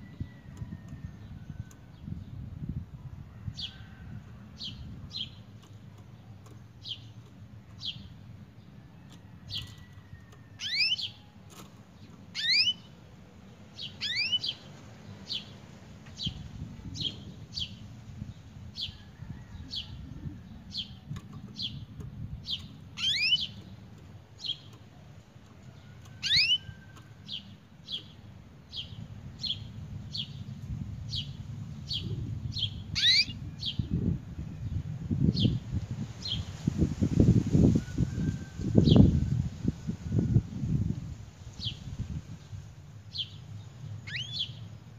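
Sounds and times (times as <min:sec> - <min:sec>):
canary chirping: 0:10.6 - 0:11.3, 0:12.3 - 0:13.0, 0:13.8 - 0:14.7, 0:22.4 - 0:23.8, 0:26.1 - 0:28.2, 0:32.6 - 0:33.8, 0:44.0 - 0:44.6.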